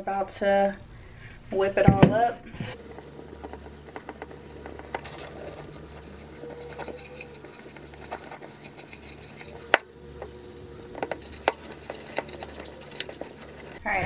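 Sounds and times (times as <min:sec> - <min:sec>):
spatula scraping glass bowl: 0:02.7 - 0:13.8.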